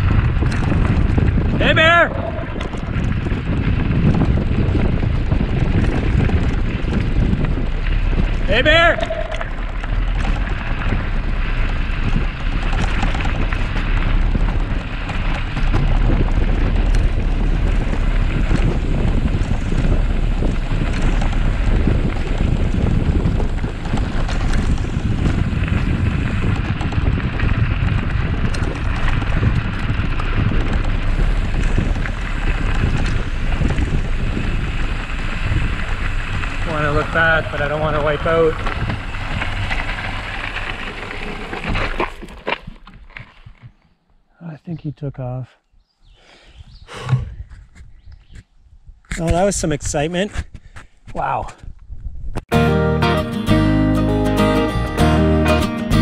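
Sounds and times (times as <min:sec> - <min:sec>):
bicycle tyres crunching on gravel: 0:00.0 - 0:44.0
wind buffeting microphone: 0:00.0 - 0:44.0, 0:45.7 - 0:52.5.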